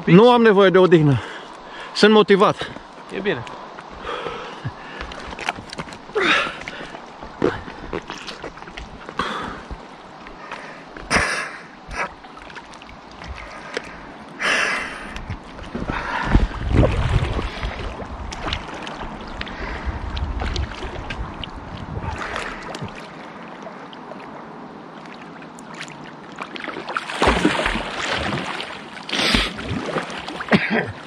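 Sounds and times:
water sloshing and splashing: 1.2 - 31.0.

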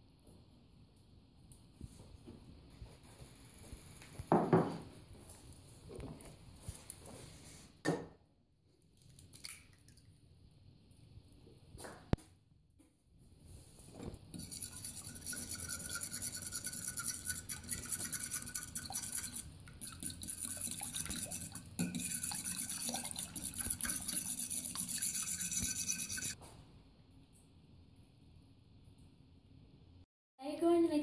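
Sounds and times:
whisk scraping ceramic bowl: 14.3 - 26.4.

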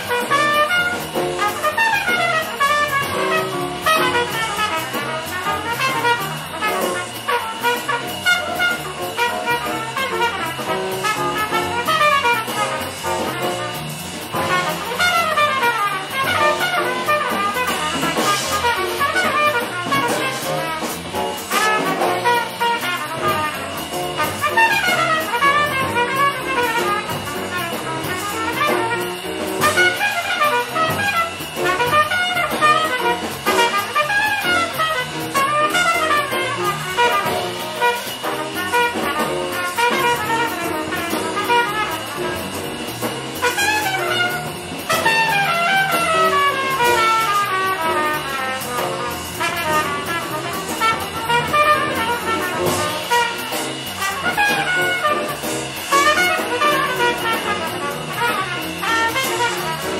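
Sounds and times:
bebop jazz combo: 0.0 - 59.9
horn soloing in fast runs: 0.0 - 59.9.

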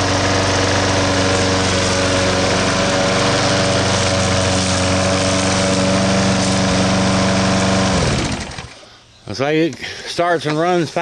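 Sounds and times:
lawn mower engine running: 0.0 - 9.1.

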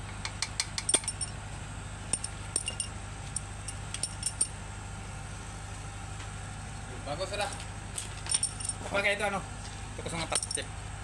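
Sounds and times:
low hum: 0.0 - 10.6
metal wrenches clinking: 0.8 - 1.4, 2.1 - 4.5, 8.3 - 8.8, 10.3 - 10.6.

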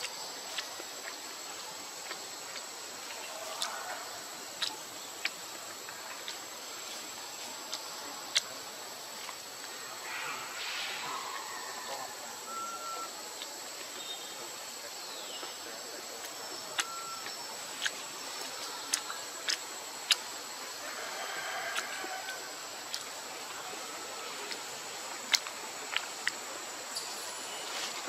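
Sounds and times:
insect-like hiss: 0.0 - 28.0
whistled bird notes: 10.2 - 13.1, 16.8 - 17.5.

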